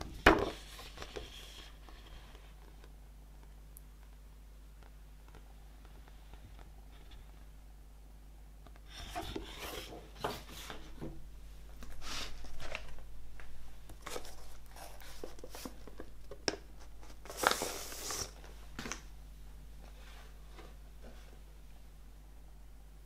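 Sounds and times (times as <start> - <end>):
paper rustling and scraping: 0.2 - 2.8, 8.9 - 11.1, 11.8 - 13.0, 14.0 - 16.1, 16.8 - 18.5.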